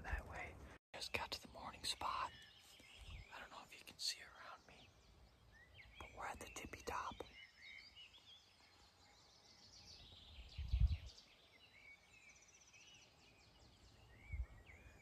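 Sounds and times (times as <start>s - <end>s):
faint bird chirps: 0.0s - 15.0s
low rumble on microphone: 10.2s - 11.2s.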